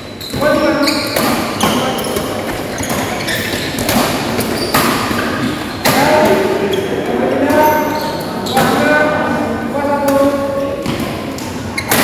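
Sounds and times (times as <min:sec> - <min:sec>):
racket striking shuttlecock: 0:01.1 - 0:06.1.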